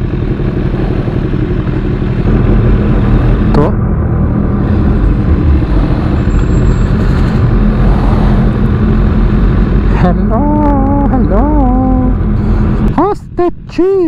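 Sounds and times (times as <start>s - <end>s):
motorcycle engine running: 0.0s - 13.1s
wind noise rushing: 2.0s - 9.9s.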